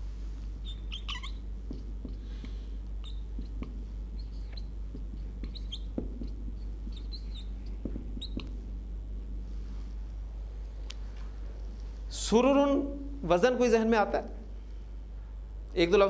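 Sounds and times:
marker squeaking on whiteboard: 0.6 - 2.2, 3.0 - 8.6
light marker taps: 1.7 - 2.6, 3.4 - 8.6.

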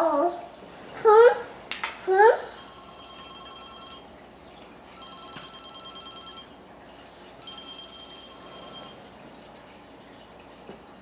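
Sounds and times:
toy phone electronic ring: 2.5 - 4.1, 5.0 - 6.5, 7.4 - 9.0.

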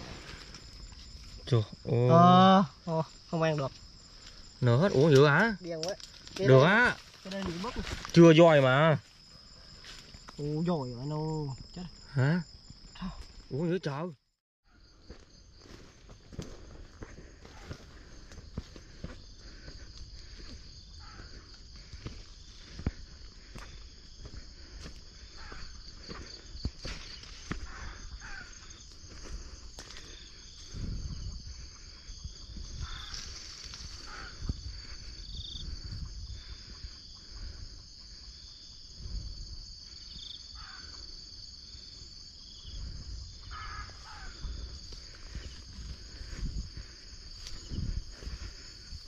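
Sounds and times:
insects chorus: 0.0 - 49.0
footsteps through vegetation: 3.9 - 10.4, 15.0 - 19.6, 20.2 - 30.8, 32.6 - 34.9, 43.5 - 49.0.

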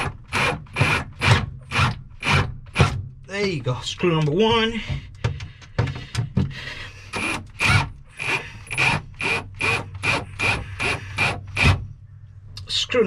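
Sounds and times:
cordless drill whirring: 0.0 - 2.5, 6.9 - 11.8.

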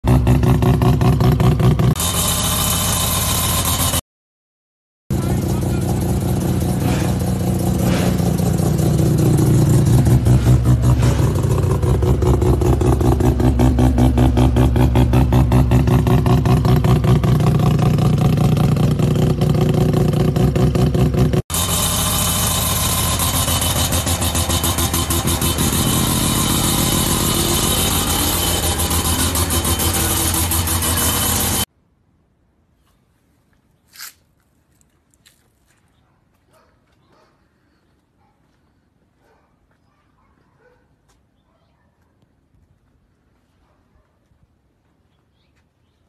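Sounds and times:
rotary engine running: 1.9 - 4.0, 21.5 - 31.7
rotary car idling: 21.5 - 31.7.

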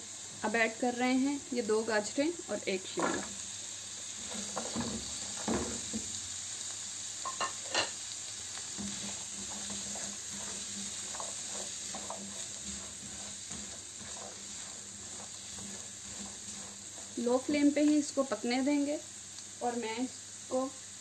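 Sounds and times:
food sizzling in a frying pan: 0.0 - 21.0
spatula scraping and tapping pan: 4.2 - 6.2, 7.2 - 18.4.

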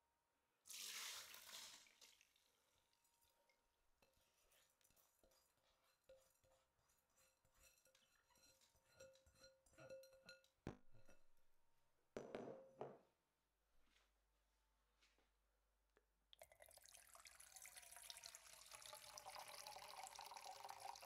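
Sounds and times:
glass bowl clinking on strainer: 7.5 - 11.2.

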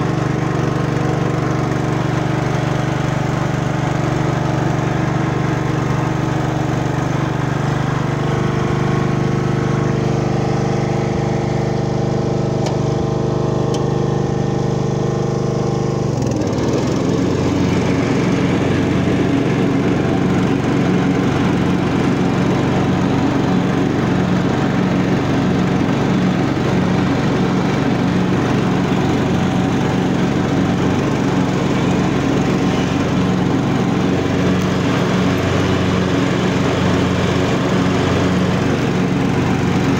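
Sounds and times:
lawn tractor engine running: 0.0 - 39.9.

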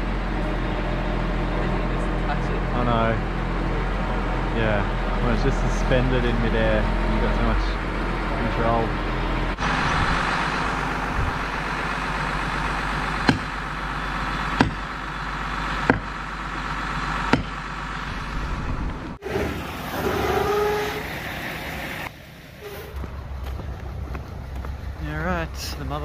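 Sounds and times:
engine running: 0.0 - 26.0
sharp knocks: 13.2 - 13.6, 14.6 - 14.9, 15.8 - 16.2, 17.3 - 17.6.

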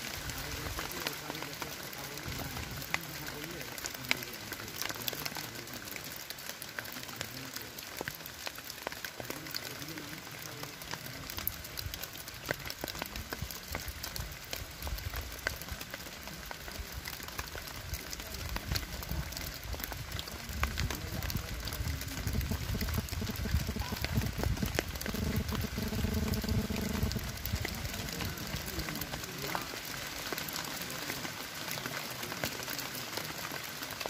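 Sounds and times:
sharp ticks and crackles: 0.0 - 34.0
low rumble: 20.6 - 28.6.

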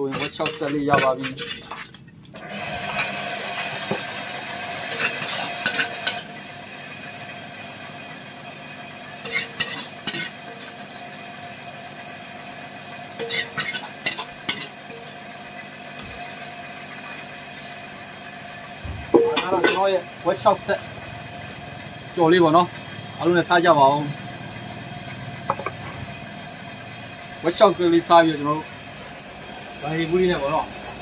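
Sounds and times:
metal ladle scraping a wok: 0.0 - 3.8, 4.6 - 6.4, 9.1 - 11.1, 13.2 - 15.3, 16.0 - 18.6.

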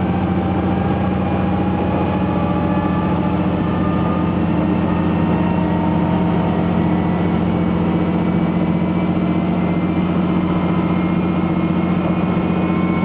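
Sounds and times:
faint rising whines: 0.0 - 13.0
railcar engine drone: 0.0 - 13.0.

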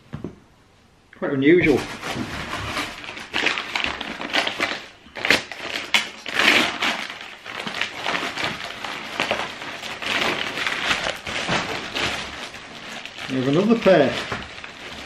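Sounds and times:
paper and plastic bag crinkling: 1.6 - 15.0.

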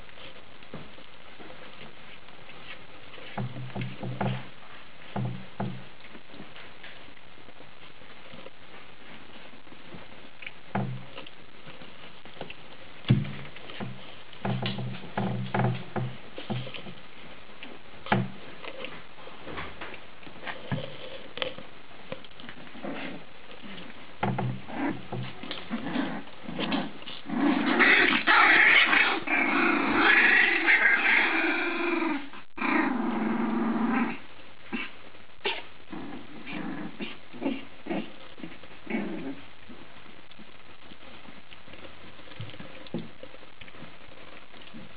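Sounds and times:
puppies scuffling: 0.0 - 32.7, 33.4 - 44.9.

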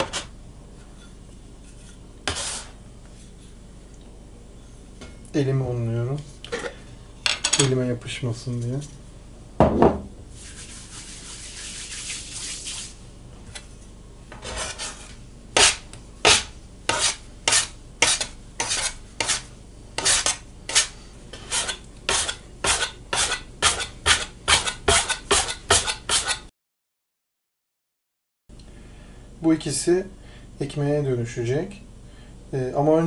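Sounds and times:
bench scraper scraping dough: 1.7 - 2.8, 14.4 - 26.5
hands rubbing flour: 10.3 - 13.0.

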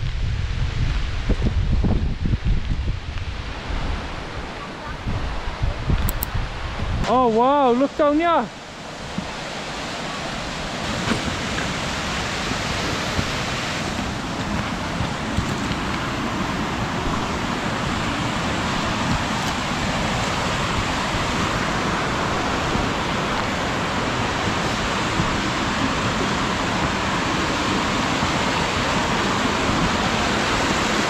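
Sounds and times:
waterfall and stream rushing: 0.4 - 31.0
footsteps on stony path: 13.2 - 16.2.

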